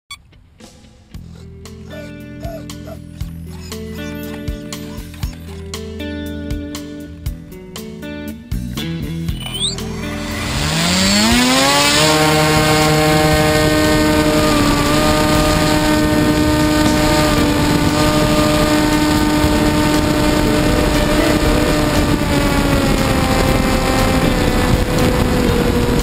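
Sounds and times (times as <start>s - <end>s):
electric motor and propeller whine: 9.4s - 26.0s
rushing wind from propeller: 10.0s - 26.0s.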